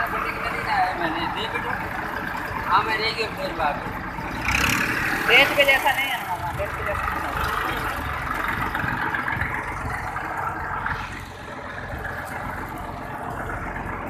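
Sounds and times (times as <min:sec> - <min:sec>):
tractor diesel engine idling: 0:00.0 - 0:14.0.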